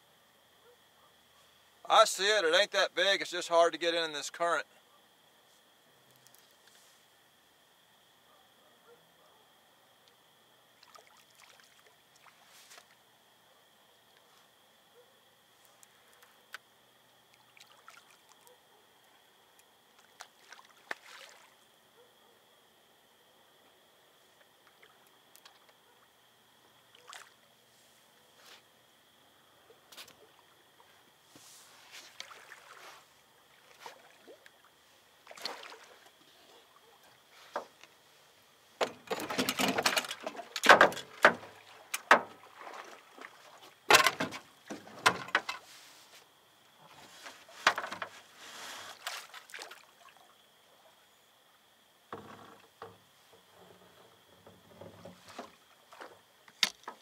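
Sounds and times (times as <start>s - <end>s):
faint high whine: 0.0s - 56.9s
water splashing: 10.8s - 12.5s, 17.3s - 18.4s, 20.0s - 21.6s, 26.9s - 27.4s, 32.1s - 32.8s, 33.5s - 36.9s, 40.1s - 43.9s, 48.9s - 50.3s
knocks against boat: 40.6s - 42.4s.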